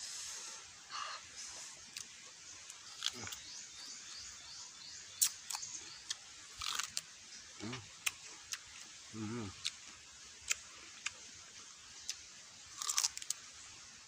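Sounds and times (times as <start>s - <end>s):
crunching fruit: 1.8s - 3.9s, 5.2s - 11.4s, 12.0s - 13.6s.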